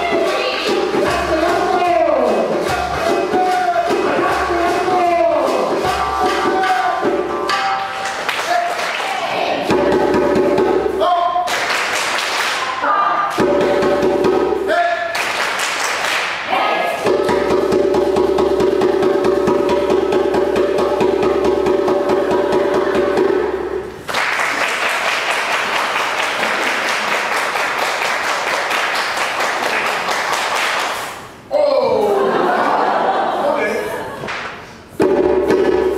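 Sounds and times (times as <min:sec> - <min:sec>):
djembe drum roll: 0:00.0 - 0:07.9, 0:09.6 - 0:11.0, 0:13.4 - 0:14.7, 0:17.0 - 0:23.8, 0:35.0 - 0:35.9
audience applause: 0:24.1 - 0:31.0.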